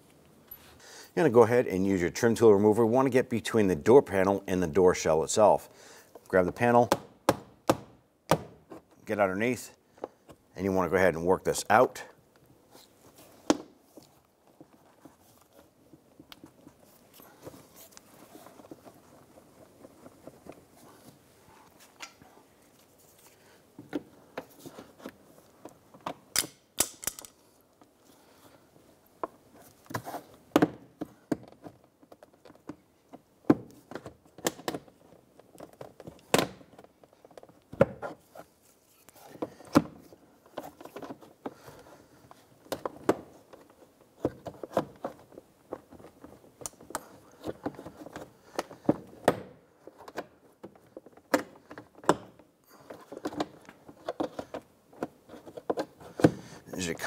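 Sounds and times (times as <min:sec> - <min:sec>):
light scraping and handling: 0:12.7 - 0:26.0.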